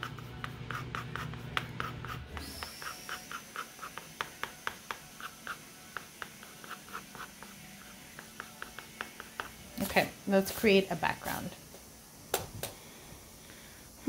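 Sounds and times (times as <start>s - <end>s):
pencil scratching on paper: 0.0s - 10.0s.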